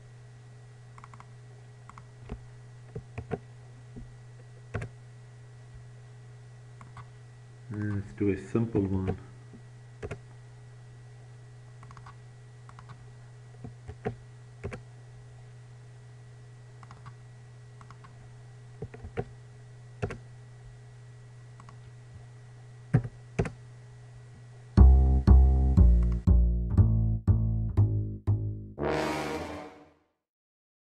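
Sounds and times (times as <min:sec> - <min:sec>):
steady low hum: 0:00.0 - 0:29.6
loud music: 0:24.8 - 0:29.9.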